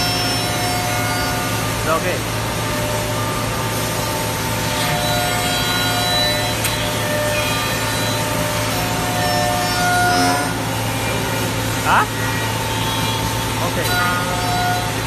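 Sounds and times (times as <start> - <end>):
low hum with steady tones: 0.0 - 15.0
router cutter milling wood: 4.0 - 15.0.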